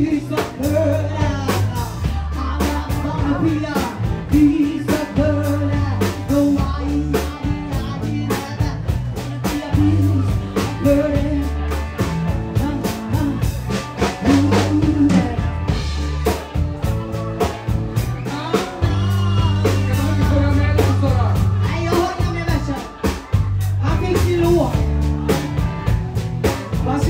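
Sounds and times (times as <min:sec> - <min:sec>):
person singing: 0:00.0 - 0:25.7
bass guitar: 0:00.0 - 0:27.0
drum kit beat: 0:00.0 - 0:27.0.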